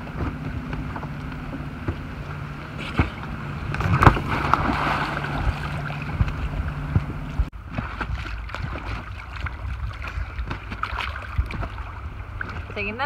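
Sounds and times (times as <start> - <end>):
knocks on boat: 0.0 - 9.4
low steady hum: 0.0 - 13.0
water against boat: 0.0 - 13.0
loud splash into water: 3.8 - 6.3.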